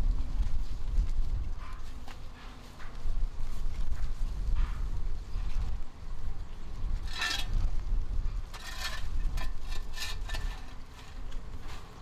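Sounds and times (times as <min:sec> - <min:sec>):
dustpan scraping concrete floor: 0:07.0 - 0:07.7, 0:08.5 - 0:12.0.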